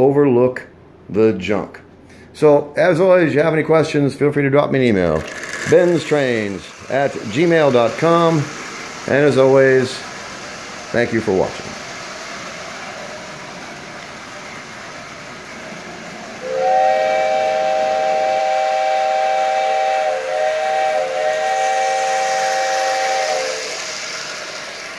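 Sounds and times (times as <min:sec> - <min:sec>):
model train running on track: 0:04.7 - 0:24.9
toy train whistle chord: 0:16.4 - 0:24.0.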